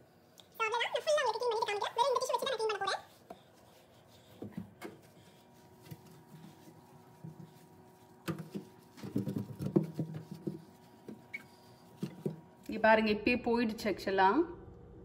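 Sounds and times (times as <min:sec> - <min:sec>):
paper towel rubbing surfaces: 0:00.7 - 0:12.4.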